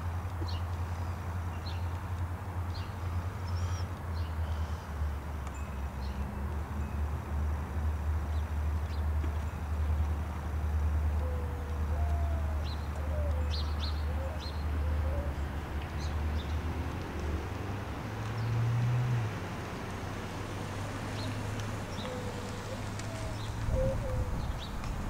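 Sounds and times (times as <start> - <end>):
dove cooing: 11.2 - 15.4, 22.0 - 24.7
small birds chirping: 21.2 - 25.0.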